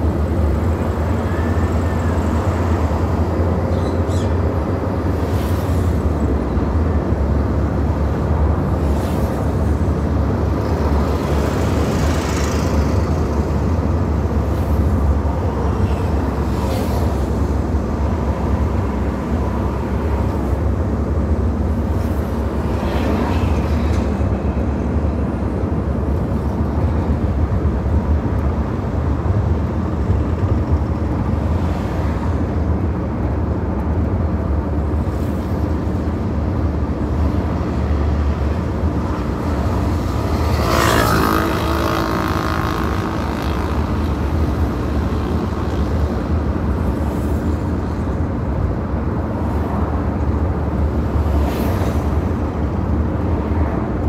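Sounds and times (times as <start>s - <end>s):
car engine and tyres rumbling: 0.0s - 54.0s
passing vehicle rushing: 34.8s - 48.5s.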